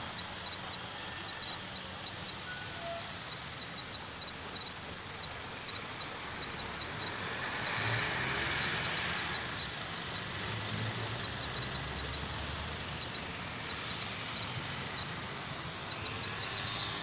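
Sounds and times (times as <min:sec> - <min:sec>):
truck engine rumble: 0:00.0 - 0:17.0
vehicle passing tyre noise: 0:05.3 - 0:17.0.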